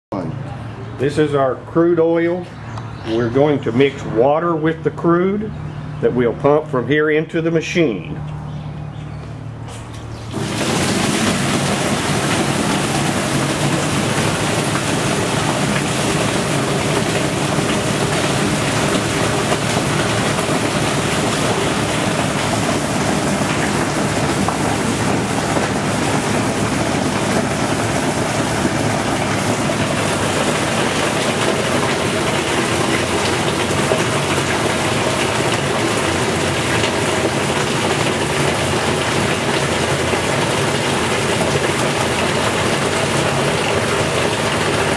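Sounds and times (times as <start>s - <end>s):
pump running: 9.4s - 44.9s
liquid pouring and splashing: 10.2s - 44.9s.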